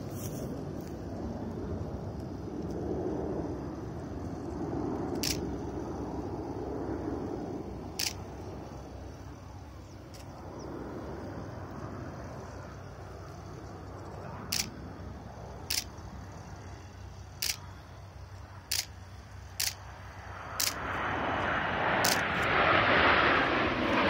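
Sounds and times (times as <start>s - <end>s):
camera shutter clicks: 5.2s - 5.4s, 8.0s - 8.2s, 14.5s - 14.7s, 15.7s - 16.0s, 17.4s - 17.6s, 18.7s - 19.8s, 20.6s - 20.8s, 22.0s - 22.2s.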